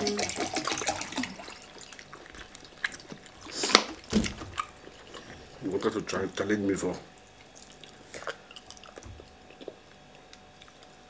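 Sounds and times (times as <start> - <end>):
water pouring into a glass: 0.0 - 3.5.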